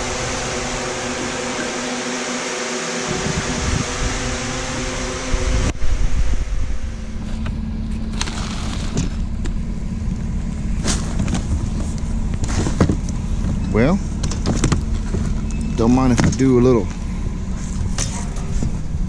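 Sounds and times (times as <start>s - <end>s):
fan-like hiss: 0.0s - 7.5s
steady hum: 0.0s - 19.0s
low rumble: 3.0s - 19.0s.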